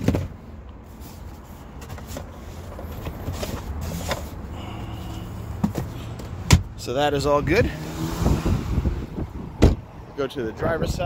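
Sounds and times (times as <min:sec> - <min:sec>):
items rustling in glove box: 0:00.0 - 0:06.8.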